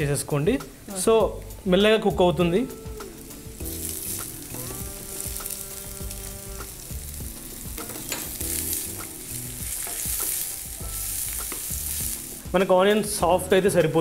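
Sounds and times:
onion sizzling in hot oil: 2.5 - 13.2.

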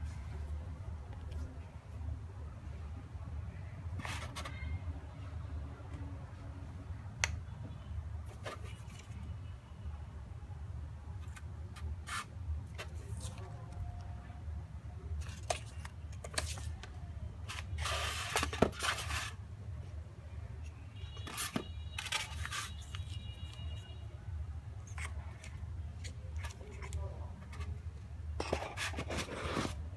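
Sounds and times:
cardboard and paper rustling: 8.3 - 9.3, 15.2 - 19.4, 21.1 - 23.9, 24.8 - 27.8, 28.4 - 29.9.

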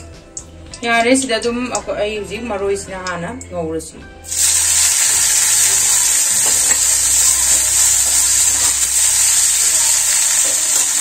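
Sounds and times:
chives sizzling in hot oil: 4.2 - 11.0.

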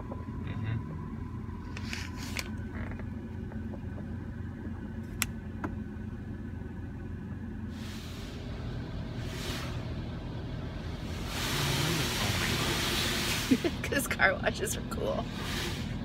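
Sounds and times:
low rumble of car wash: 0.0 - 16.0
high-pressure water spray hiss: 11.1 - 13.9, 15.3 - 16.0.

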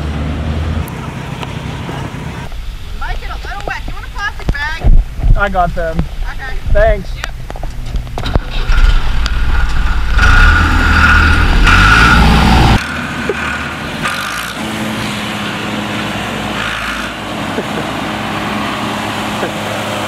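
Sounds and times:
tractor engine revving: 7.4 - 20.0.

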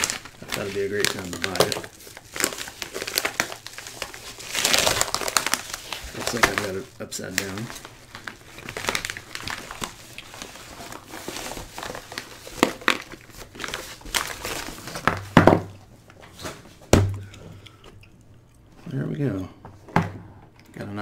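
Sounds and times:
padded mailer crinkling: 0.0 - 15.3.

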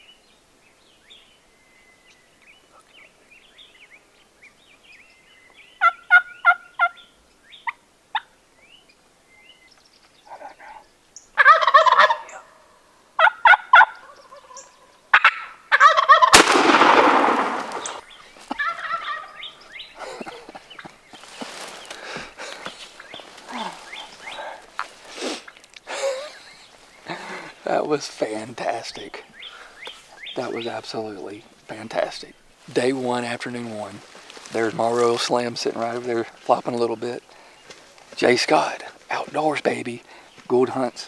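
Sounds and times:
wild turkey gobbling: 5.8 - 8.4, 10.3 - 25.6
shotgun blast echoing: 16.3 - 18.0.

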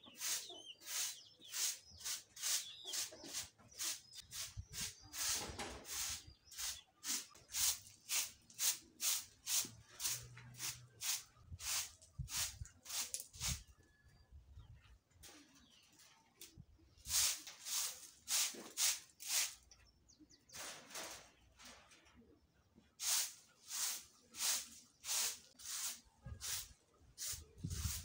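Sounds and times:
broom sweeping dirt: 0.0 - 13.7, 16.8 - 19.7, 22.9 - 28.0.

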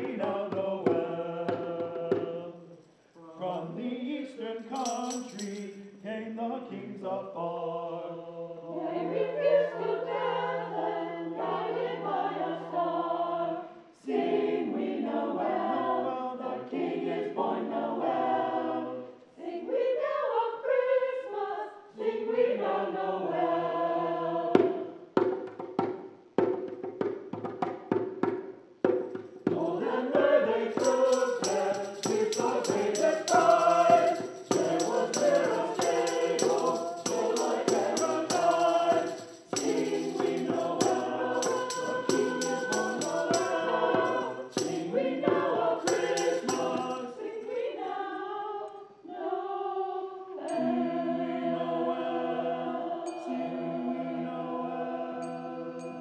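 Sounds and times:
choir singing in parts: 0.0 - 2.7, 3.4 - 25.1, 29.4 - 56.0
sharp rhythmic strikes: 4.8 - 5.8, 25.2 - 47.2.

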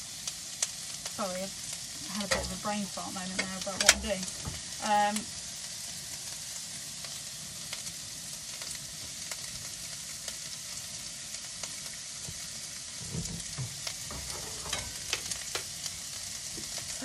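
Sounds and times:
vegetables sizzling in frying pan: 0.0 - 17.0
spatula scraping pan: 2.0 - 4.7, 13.0 - 15.7.

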